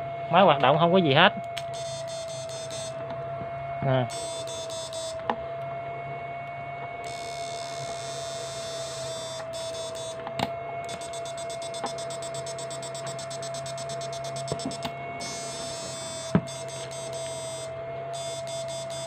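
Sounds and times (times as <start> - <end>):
high pulsing buzz: 0.0 - 19.0
mid-pitched whine: 0.0 - 19.0
low hum: 1.4 - 19.0
sharp clicks: 1.5 - 3.0, 7.0 - 19.0.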